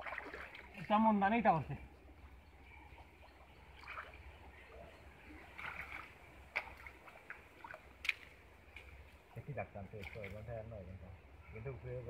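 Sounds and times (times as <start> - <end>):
small sharp splashes: 0.0 - 1.0, 2.9 - 9.2, 9.8 - 10.6
pond water sloshing: 0.0 - 11.4.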